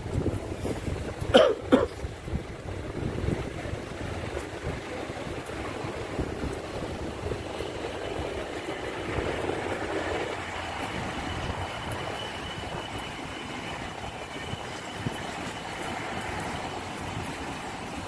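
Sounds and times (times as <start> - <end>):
train rumble and rail noise: 0.0 - 18.0
thin high whine: 6.8 - 18.0.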